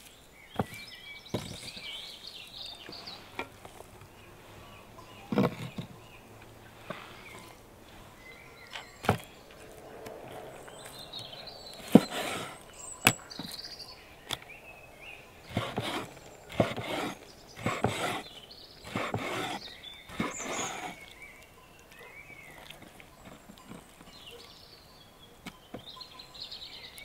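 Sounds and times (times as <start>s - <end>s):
birds chirping: 0.0s - 27.0s
utensil scraping strokes: 11.8s - 13.5s, 15.5s - 21.1s.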